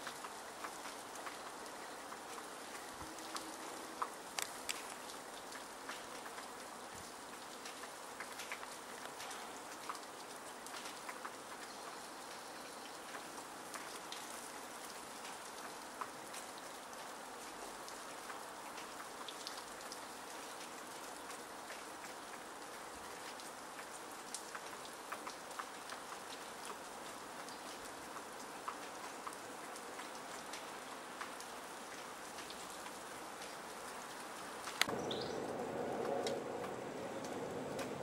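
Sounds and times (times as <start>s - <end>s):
snowflakes ticking on surfaces: 0.0s - 12.4s
hiss of falling wet snow: 0.0s - 38.0s.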